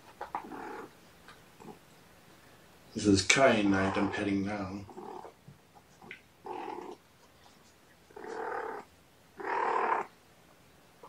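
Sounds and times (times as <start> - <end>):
cat purring: 0.0 - 1.9, 3.2 - 10.2.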